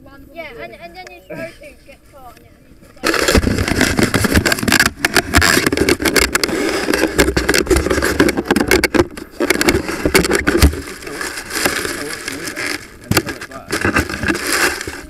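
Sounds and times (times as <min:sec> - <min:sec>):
camera handling noise: 0:03.0 - 0:15.0.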